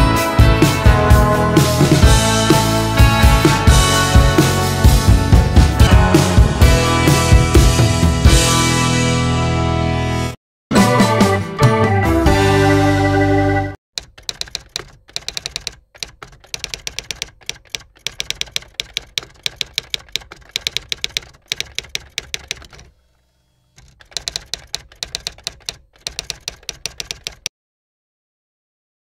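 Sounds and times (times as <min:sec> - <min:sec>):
typewriter key clicks: 0:14.0 - 0:22.9, 0:23.8 - 0:27.5.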